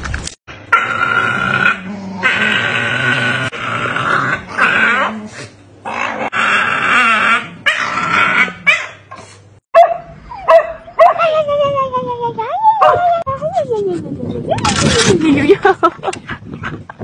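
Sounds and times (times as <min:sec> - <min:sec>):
dogs growling and yipping: 0:00.7 - 0:09.4.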